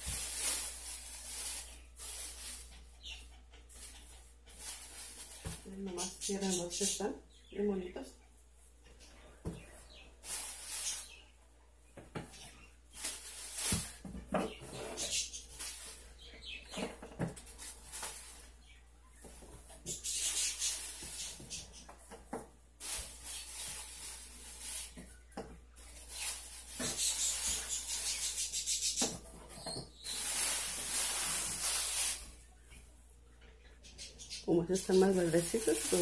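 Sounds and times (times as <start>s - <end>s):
plastic bag rustling: 0.0s - 3.0s, 3.6s - 5.8s, 10.2s - 11.2s, 12.9s - 18.6s, 19.3s - 21.7s, 22.8s - 25.0s, 25.8s - 32.5s, 34.6s - 36.0s.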